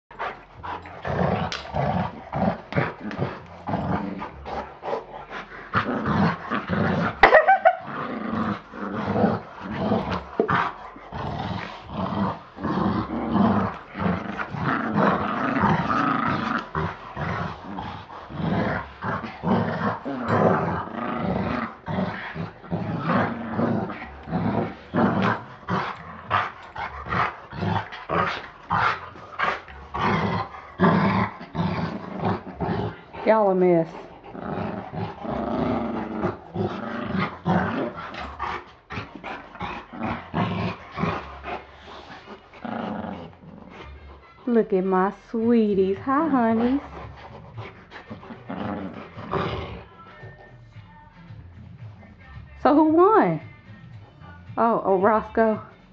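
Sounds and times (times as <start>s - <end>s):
dogs growling: 0.1s - 55.9s.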